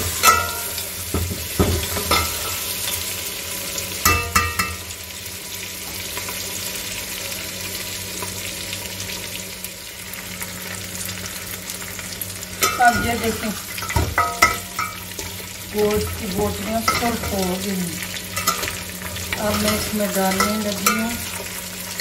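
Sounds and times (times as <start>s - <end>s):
meat sizzling in oil: 0.0s - 22.0s.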